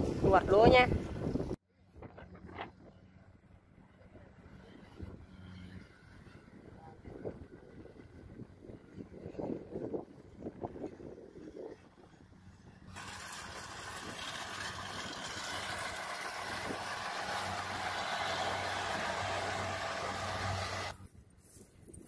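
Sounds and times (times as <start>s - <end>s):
combine harvester working: 2.0s - 21.1s.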